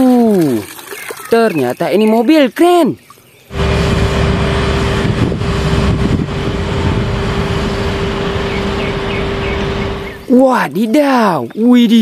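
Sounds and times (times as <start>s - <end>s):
constant whine: 3.5s - 10.3s
truck engine rumbling: 3.5s - 10.4s.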